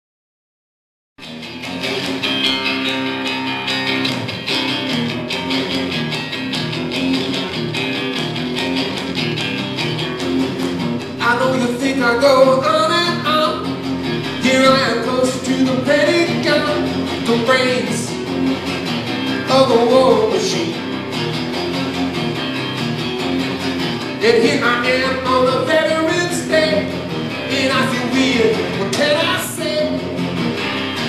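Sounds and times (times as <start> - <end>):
acoustic guitar strumming: 1.2 - 31.0
man singing: 11.1 - 18.2, 19.4 - 21.0, 24.1 - 30.4.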